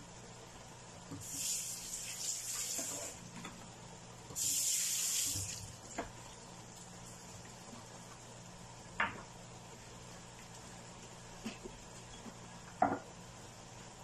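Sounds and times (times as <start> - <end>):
tap water running into sink: 1.2 - 3.2, 4.3 - 6.2.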